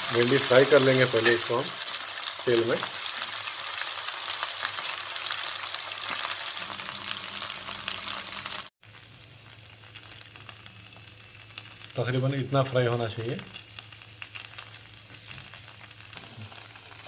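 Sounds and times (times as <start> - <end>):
okra sizzling in frying oil: 0.0 - 17.0.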